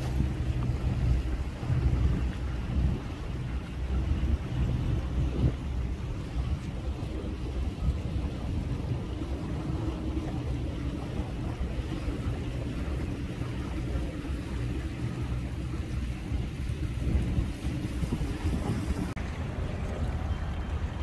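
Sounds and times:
boat engine rumbling: 0.0s - 21.0s
wind on microphone: 0.0s - 21.0s.

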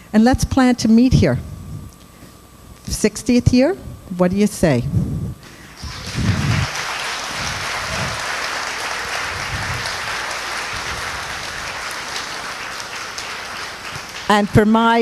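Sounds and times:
audience applauding: 5.8s - 14.8s.

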